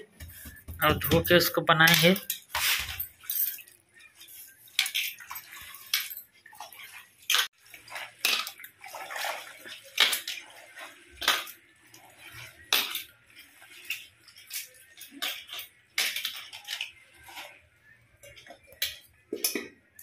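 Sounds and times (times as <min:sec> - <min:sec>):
leaves splashing in water: 0:06.6 - 0:15.2.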